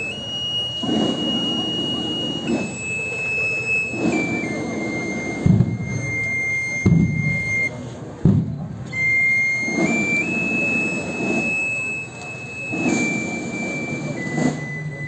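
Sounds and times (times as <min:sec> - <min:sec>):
high-pitched whine: 0:00.0 - 0:07.7
procession crowd noise: 0:00.0 - 0:15.0
low thumps: 0:03.9 - 0:08.8.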